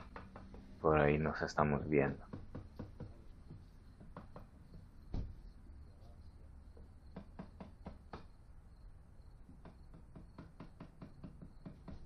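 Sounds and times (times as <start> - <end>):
faint quick knocks on wood: 5.1 - 5.4.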